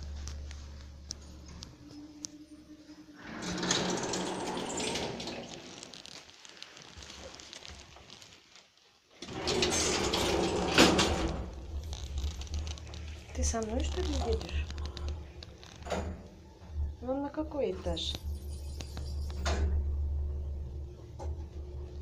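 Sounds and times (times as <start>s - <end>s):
lift doors sliding whirr: 2.8s - 5.8s, 9.2s - 11.8s.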